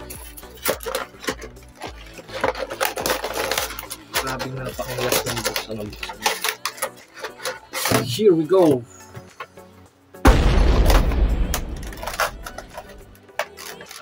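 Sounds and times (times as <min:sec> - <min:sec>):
plastic packaging crinkling: 0:00.0 - 0:07.9, 0:11.6 - 0:14.0.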